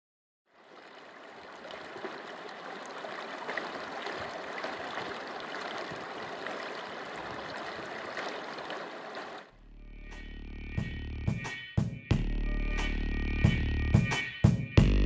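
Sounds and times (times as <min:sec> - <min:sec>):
creek rushing over rocks: 0:00.5 - 0:09.5.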